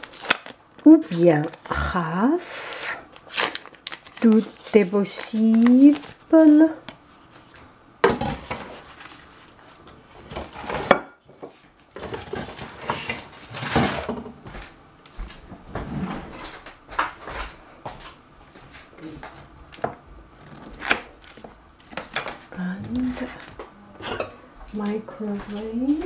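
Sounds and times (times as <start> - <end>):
paper wrapper rustling: 0.0 - 1.7, 2.7 - 7.6, 8.3 - 10.9, 20.4 - 23.6.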